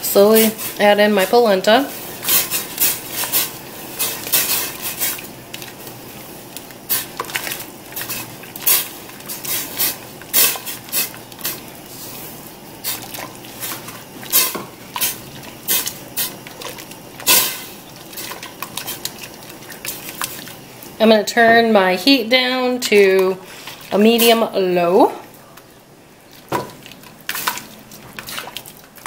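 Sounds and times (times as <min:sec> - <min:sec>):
broth bubbling hiss: 0:00.0 - 0:21.0.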